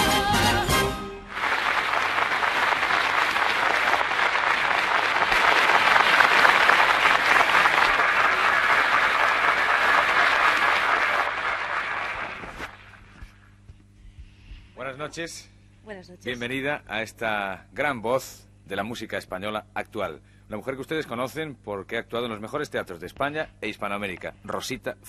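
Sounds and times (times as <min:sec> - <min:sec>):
audience applauding: 0:01.2 - 0:13.2.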